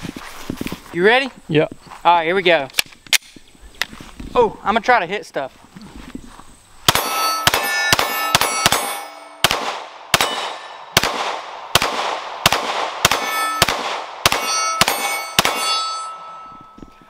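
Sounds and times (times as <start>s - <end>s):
steel targets clanging: 6.9s - 9.4s, 13.2s - 13.7s, 14.3s - 17.0s
pistol shots: 6.9s - 16.3s.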